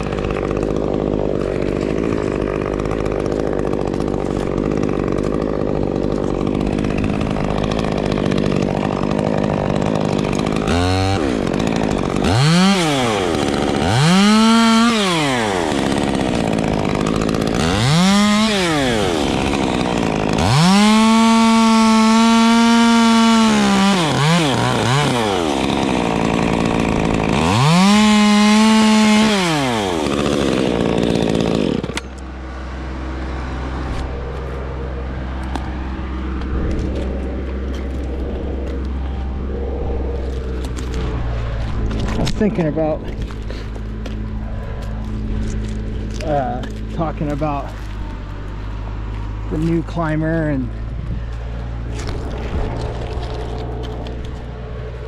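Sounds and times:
chainsaw revving in bursts: 0.0s - 33.9s.

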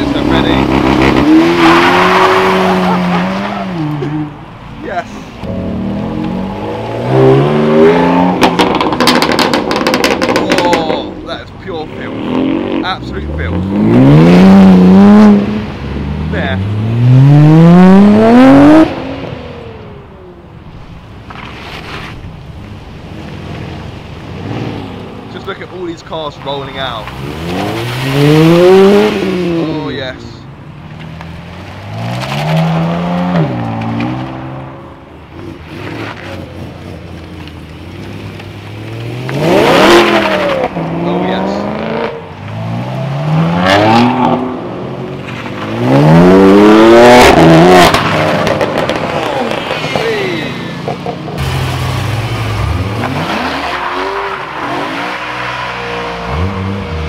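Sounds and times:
car engine driving off: 5.4s - 11.2s, 30.9s - 57.0s.

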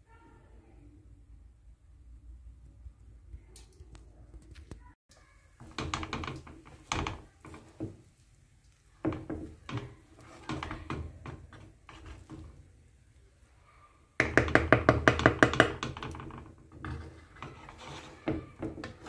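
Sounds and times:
wooden spoon scraping pan: 5.5s - 12.8s, 14.2s - 19.0s.

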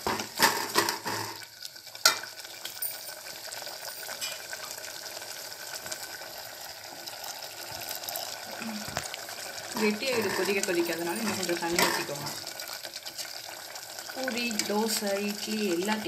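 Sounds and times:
curry bubbling in a pot: 0.0s - 16.0s
water pouring into curry: 1.8s - 14.5s.

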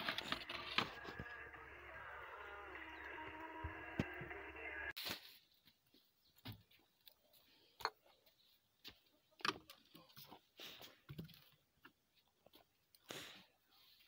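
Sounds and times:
objects being handled: 0.0s - 1.5s.

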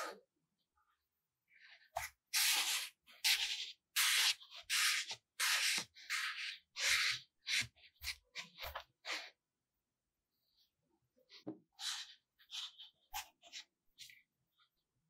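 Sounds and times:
scratchy rubbing of kinetic sand: 1.6s - 9.4s, 11.8s - 14.8s.

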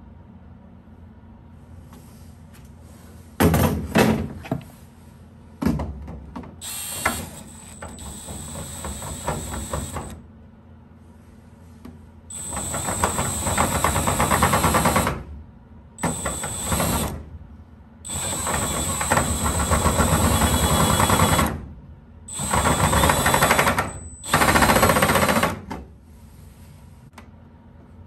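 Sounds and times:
cordless drill cutting metal: 6.6s - 10.1s, 12.3s - 15.0s, 16.0s - 17.1s, 18.1s - 21.5s, 22.3s - 25.0s.

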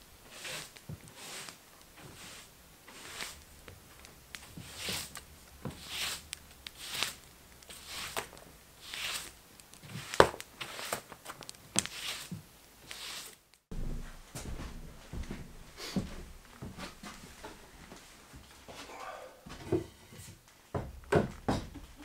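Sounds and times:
broom sweeping a wooden floor: 0.2s - 11.1s, 11.8s - 13.4s, 15.2s - 18.8s.

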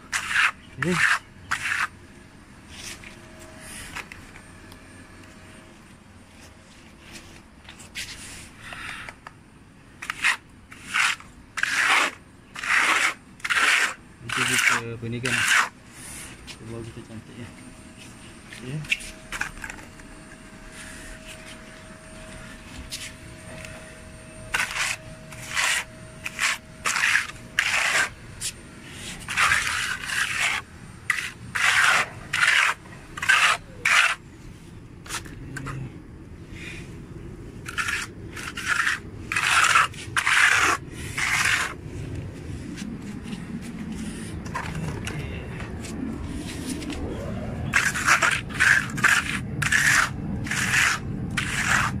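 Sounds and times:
trowel scraping wet plaster: 0.0s - 1.9s, 10.0s - 16.6s, 24.5s - 34.2s, 37.6s - 41.8s, 47.6s - 52.0s.

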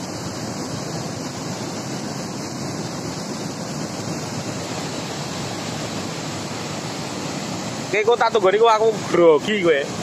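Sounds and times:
river water rushing over weir: 0.0s - 10.0s.

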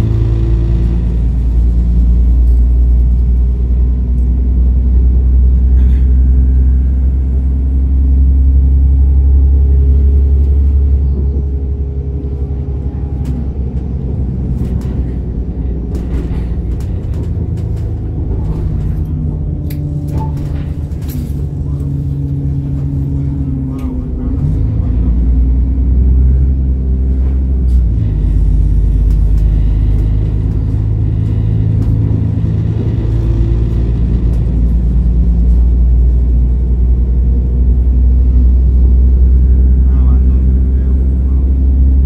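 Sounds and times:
train diesel engine drone: 0.0s - 42.0s
train running sound: 0.0s - 42.0s.

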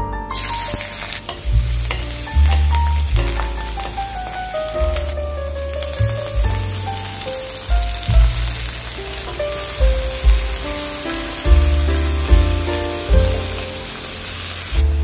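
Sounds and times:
vegetables sizzling in hot oil: 0.3s - 5.2s, 5.8s - 15.0s
background music with loud bass: 7.7s - 15.0s.

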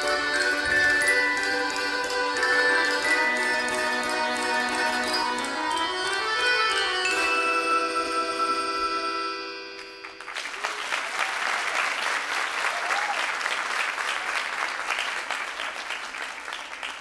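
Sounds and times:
music: 0.0s - 10.6s
audience applauding: 9.8s - 17.0s.

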